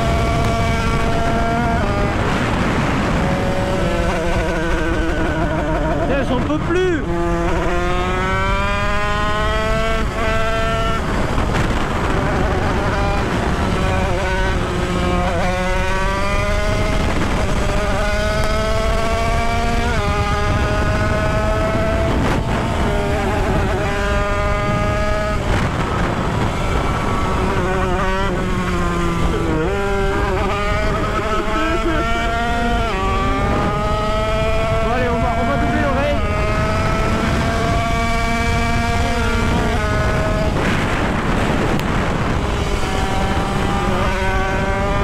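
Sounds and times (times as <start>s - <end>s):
two-stroke engine revving: 0.0s - 45.0s
wind noise: 0.0s - 45.0s.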